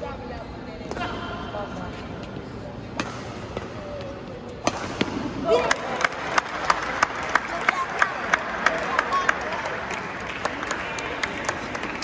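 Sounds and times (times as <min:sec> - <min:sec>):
light clapping in echoing hall: 0:05.6 - 0:12.0.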